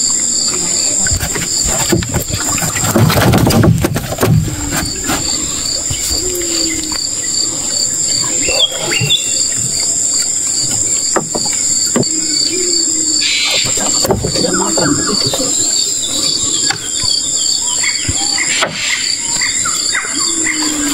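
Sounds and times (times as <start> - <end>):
insects droning and chirping: 0.0 - 20.9
fish knocking on wooden planks: 1.0 - 5.4, 10.6 - 12.3, 13.5 - 15.6.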